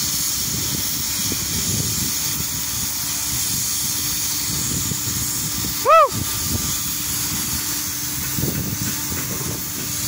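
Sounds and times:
mechanical hum and rumble: 0.0 - 10.0
whistle-like call: 5.8 - 6.3.

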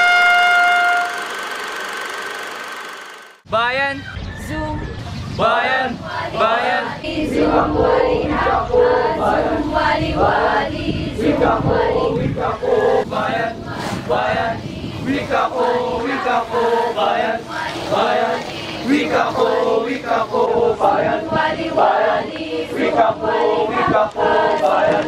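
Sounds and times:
group reciting in unison: 5.4 - 25.0.

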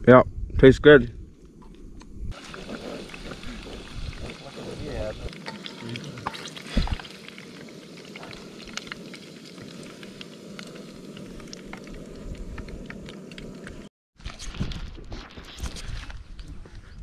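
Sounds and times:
fish deep-frying in oil: 2.3 - 13.9.

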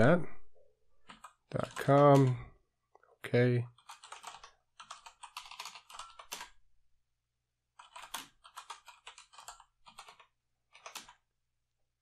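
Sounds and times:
computer keyboard typing: 1.0 - 2.4, 3.7 - 6.6, 7.8 - 11.2.

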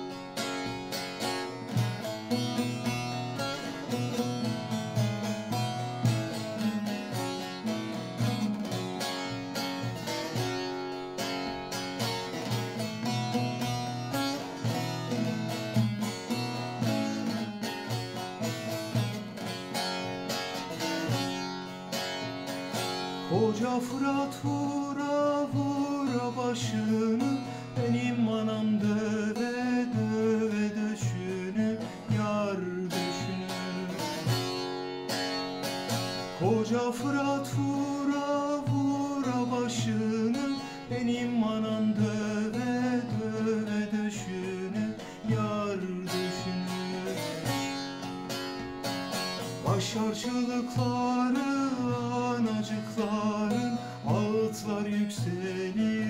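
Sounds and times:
long-necked lute strummed: 0.0 - 56.0
man singing: 23.2 - 34.6, 36.4 - 47.8, 49.4 - 56.0.

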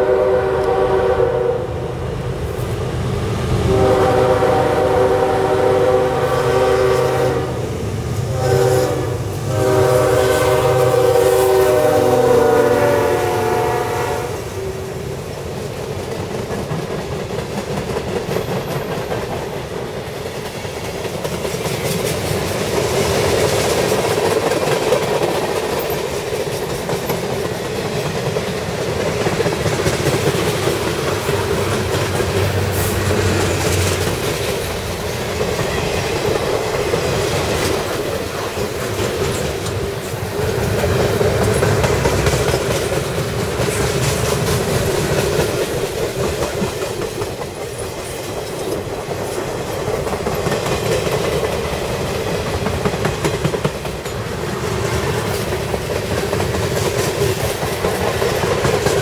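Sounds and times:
locomotive horn blasts: 0.0 - 1.8, 3.7 - 14.6
wheels clacking on rails: 2.2 - 59.0
freight cars rumbling past: 30.2 - 45.9.

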